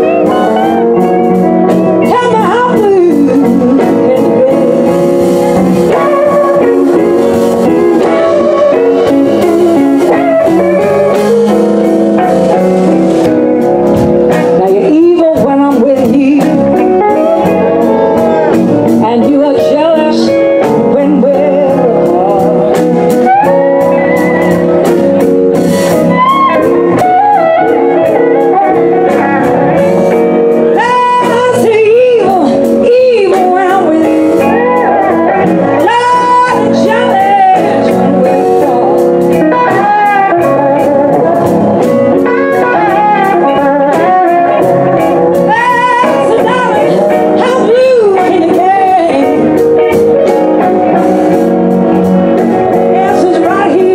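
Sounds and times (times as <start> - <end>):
woman singing: 0.0 - 11.6, 14.3 - 24.6, 30.5 - 49.6, 52.7 - 53.9
bass: 0.0 - 53.9
drum kit beat: 0.0 - 53.9
electric guitars: 0.0 - 53.9.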